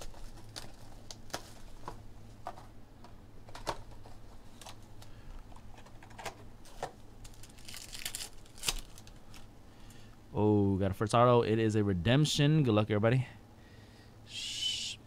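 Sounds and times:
wrapper crinkling: 0.0 - 2.0, 6.7 - 9.5.

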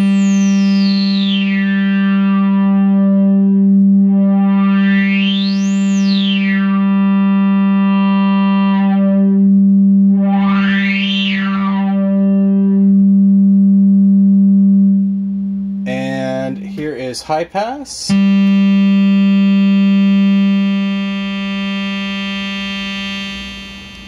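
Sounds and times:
resonant synthesizer filter sweep: 0.0 - 15.9, 18.1 - 24.0
sawtooth synth drone: 18.1 - 24.0.

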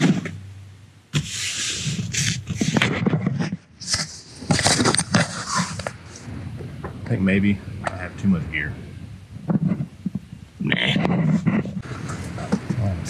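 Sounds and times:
hand rustling and knocking camera: 1.1 - 7.0, 9.4 - 12.8
bag scraping on rubber mat: 3.8 - 5.8.

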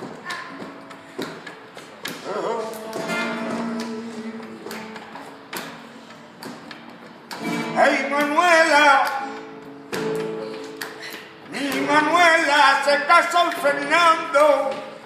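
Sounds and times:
person singing unaccompanied: 2.2 - 5.0.

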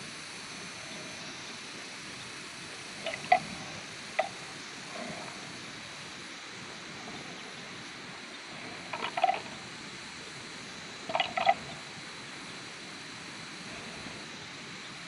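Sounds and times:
steady outdoor hiss: 0.0 - 15.0
buffalo horns clashing: 3.0 - 3.6, 8.9 - 9.6, 11.1 - 11.8.

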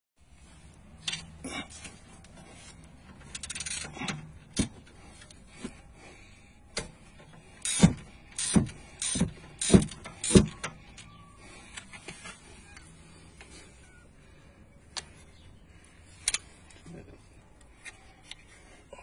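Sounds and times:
hand ratchet clicking: 3.2 - 3.9, 7.6 - 10.8.

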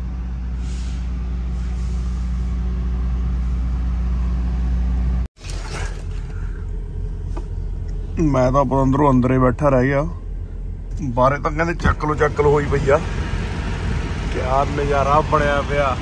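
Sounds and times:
rough engine rumble: 0.0 - 16.0
diesel truck engine idling: 6.1 - 16.0.

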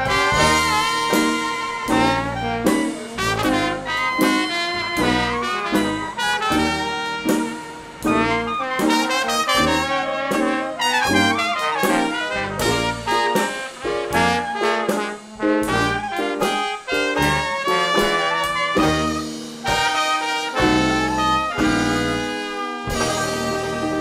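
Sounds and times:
jazz music with brass horns: 0.0 - 24.0.

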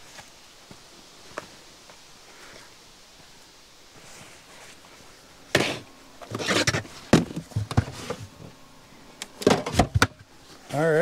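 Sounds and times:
scraping and rustling: 4.0 - 8.6.

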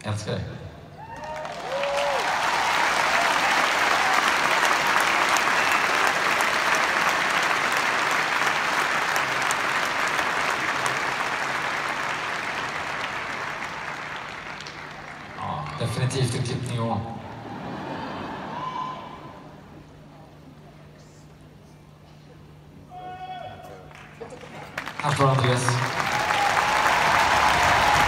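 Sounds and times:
crowd applauding and cheering: 0.9 - 16.6, 23.6 - 28.0
shouted cheers: 1.0 - 6.5, 18.4 - 19.5, 25.7 - 28.0.

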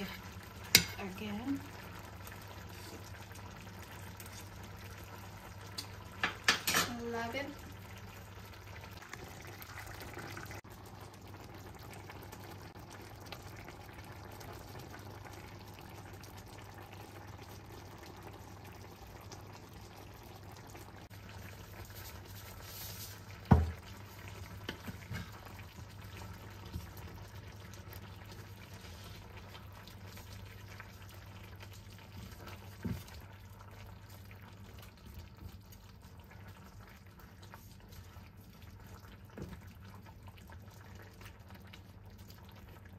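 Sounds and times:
curry bubbling in a pan: 0.0 - 42.9.

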